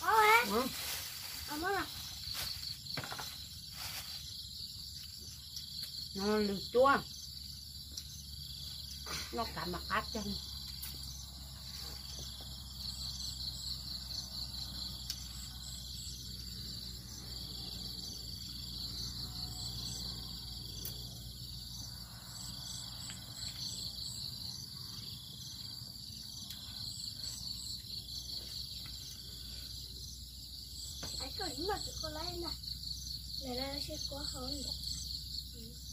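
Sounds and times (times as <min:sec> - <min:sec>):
insects chirring in pulsing trills: 0:00.0 - 0:35.9.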